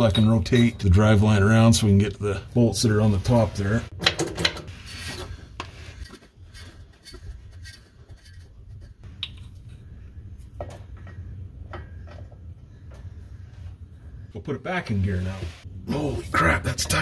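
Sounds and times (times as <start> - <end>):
rubbing and scraping handling noises: 2.6 - 9.1, 14.8 - 15.7
steady low hum: 4.7 - 17.0.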